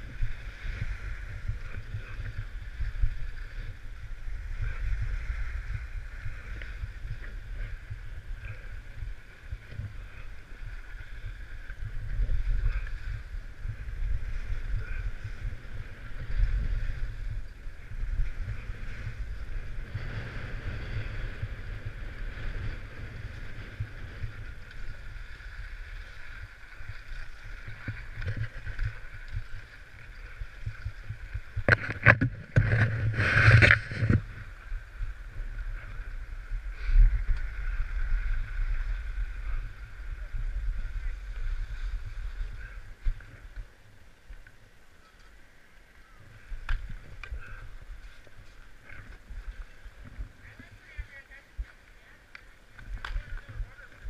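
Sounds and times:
wind buffeting microphone: 0.0s - 43.9s, 46.1s - 54.0s
sharp ski scrapes: 32.6s - 34.3s.

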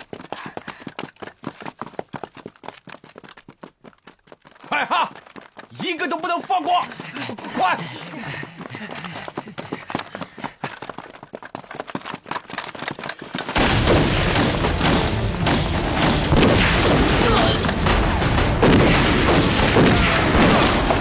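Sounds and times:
heavy gunfire volley: 13.6s - 21.0s.

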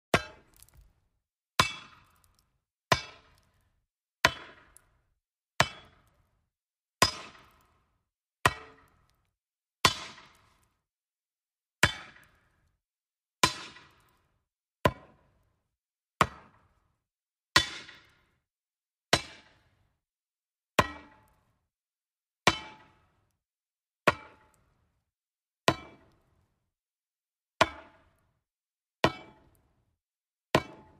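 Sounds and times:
metal hammer striking wood: 0.1s - 0.9s, 4.2s - 4.8s, 5.6s - 6.0s, 8.4s - 8.9s, 9.8s - 10.5s, 17.6s - 18.2s, 20.8s - 21.2s, 30.6s - 30.9s.

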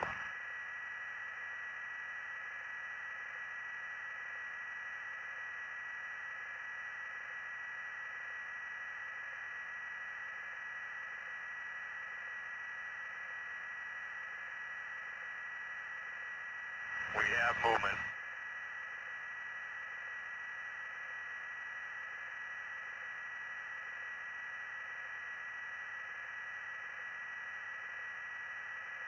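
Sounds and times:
radio static hiss: 16.9s - 18.1s.

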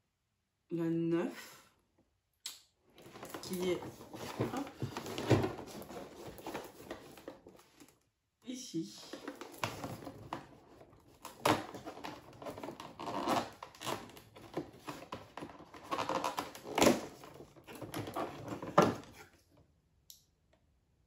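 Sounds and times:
cardboard rustling and scraping: 3.0s - 8.0s, 9.0s - 19.4s.

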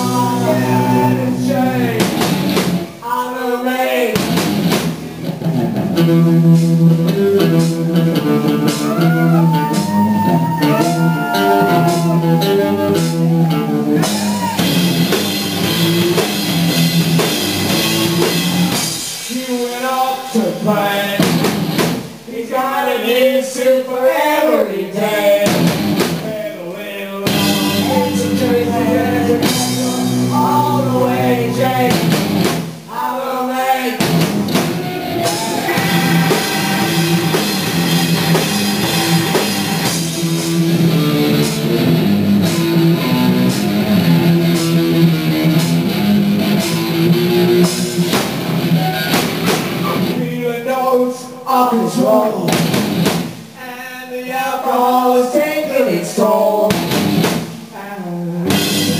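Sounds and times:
person singing: 0.0s - 2.2s, 6.6s - 14.7s, 22.3s - 32.2s, 32.9s - 41.8s
drum kit: 0.0s - 3.1s, 3.8s - 22.6s, 25.1s - 26.6s, 27.2s - 50.4s, 52.2s - 53.6s, 56.4s - 57.8s, 58.4s - 58.9s
electric guitar: 4.2s - 19.3s, 27.3s - 32.7s, 34.0s - 50.3s, 56.6s - 58.9s.

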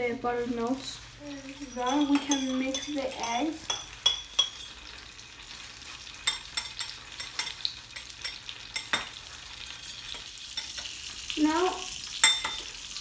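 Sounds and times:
butter sizzling in a pan: 0.0s - 13.0s
fork stirring eggs in a bowl: 1.6s - 11.0s.

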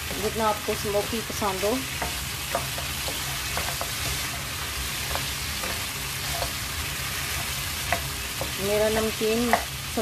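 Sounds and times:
wooden spoon scraping a pan: 0.0s - 9.7s
meat sizzling in a wok: 0.0s - 10.0s.

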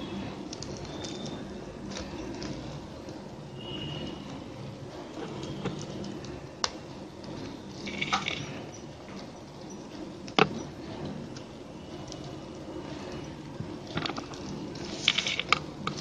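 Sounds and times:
plastic wire rustling and clicking: 13.9s - 16.0s.

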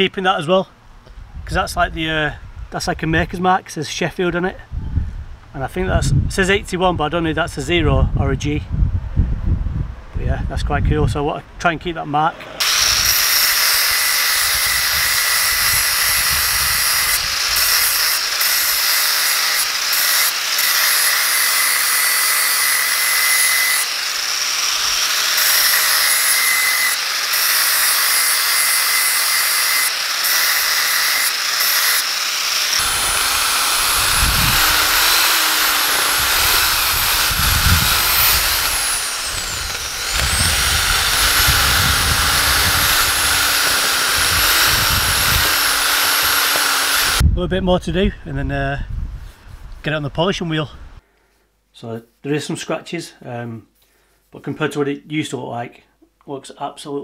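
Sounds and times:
angle grinder whining on steel: 12.3s - 47.2s
electric drill wavering pitch: 12.5s - 47.2s.

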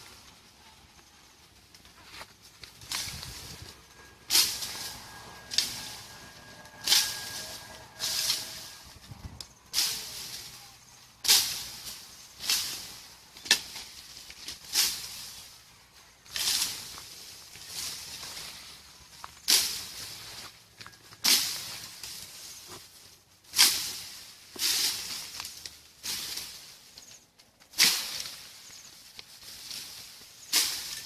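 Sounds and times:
bushes swishing under strikes: 2.8s - 15.6s.

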